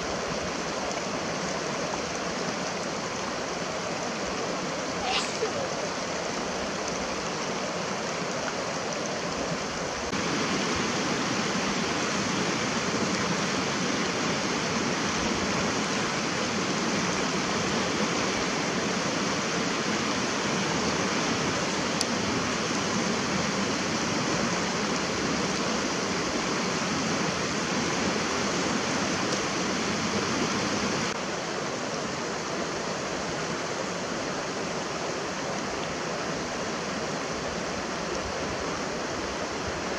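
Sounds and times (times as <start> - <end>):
fast mountain stream rushing: 0.0 - 39.9.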